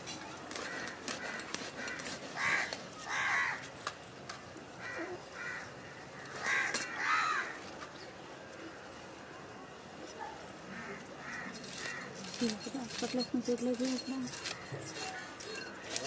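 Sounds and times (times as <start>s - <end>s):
crows cawing: 0.6s - 3.6s, 4.8s - 7.6s, 10.7s - 12.2s
blade scraping fish scales: 11.4s - 16.0s.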